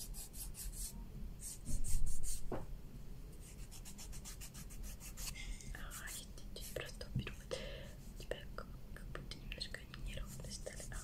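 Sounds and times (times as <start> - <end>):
scratching strokes: 0.0 - 2.5, 3.4 - 5.4.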